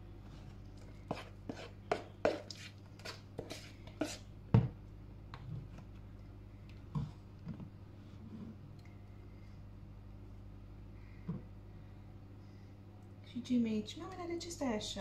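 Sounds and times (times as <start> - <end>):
faint steady hum: 0.0 - 15.0
metal spoon scraping mixing bowl: 1.1 - 4.2.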